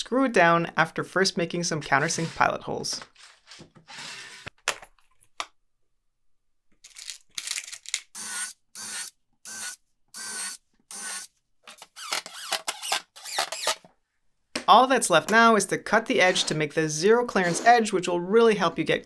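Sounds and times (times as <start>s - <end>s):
cordless drill bursts: 2.0s - 2.5s, 3.9s - 4.5s, 8.2s - 11.3s, 11.9s - 13.8s
screws clattering: 6.8s - 8.0s.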